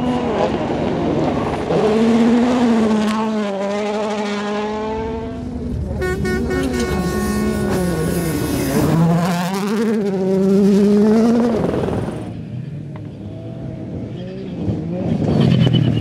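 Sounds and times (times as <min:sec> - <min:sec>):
rally car engines at high revs: 0:00.0 - 0:06.0, 0:06.6 - 0:12.4.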